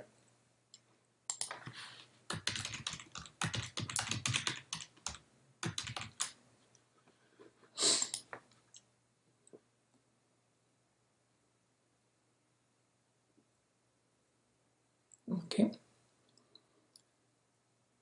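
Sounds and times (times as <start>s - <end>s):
computer keyboard typing: 1.3s - 1.7s, 2.3s - 6.4s.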